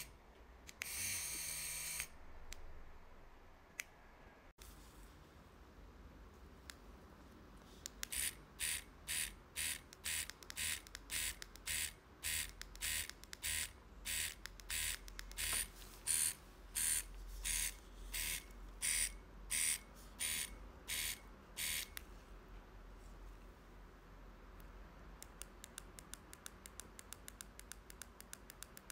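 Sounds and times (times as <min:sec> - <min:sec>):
tattoo machine buzzing in pulses: 0:00.8 - 0:02.1, 0:08.1 - 0:21.9.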